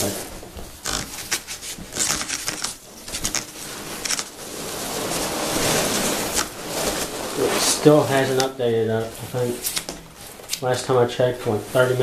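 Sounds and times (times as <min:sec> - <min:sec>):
cardboard flaps scraping: 0:00.0 - 0:12.0
foam packing peanuts rustling: 0:00.0 - 0:12.0.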